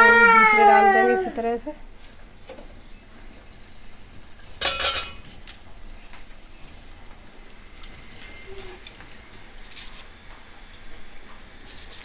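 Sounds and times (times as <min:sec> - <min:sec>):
food deep-frying in oil: 0:01.7 - 0:12.0
steel utensils clattering: 0:04.4 - 0:05.5.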